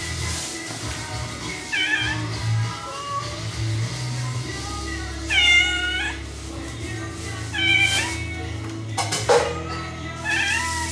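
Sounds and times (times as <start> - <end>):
cat meowing: 1.6 - 3.4, 5.3 - 6.3, 7.5 - 8.4, 10.2 - 10.9.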